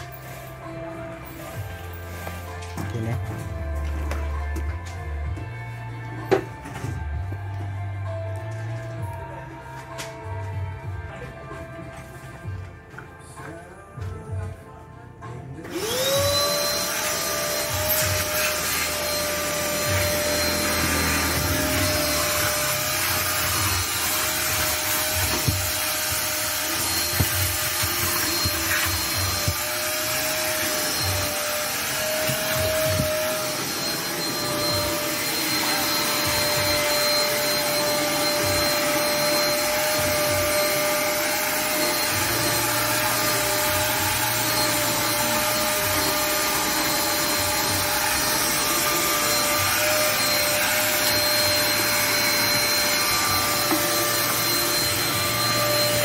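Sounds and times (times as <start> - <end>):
shop vacuum motor whine: 15.6 - 56.0.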